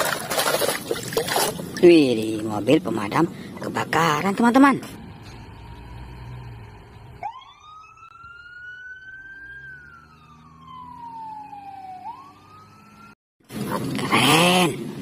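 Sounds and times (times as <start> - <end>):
truck engine rumble: 0.0 - 15.0
fire engine siren wailing: 5.0 - 13.2.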